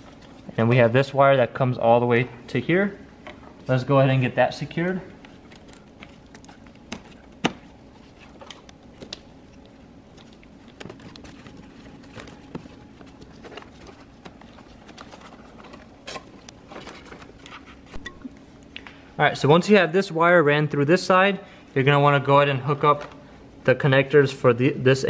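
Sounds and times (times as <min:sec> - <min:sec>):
faint steady hum: 0:00.0 - 0:25.0
gloved hands handling wiring and trim: 0:03.2 - 0:18.9.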